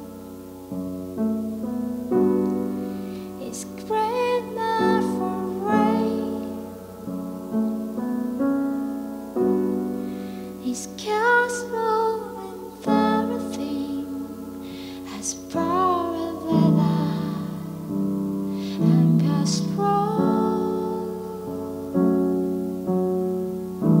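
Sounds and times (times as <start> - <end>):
woman singing gliding notes: 2.1 - 8.0, 9.4 - 22.4.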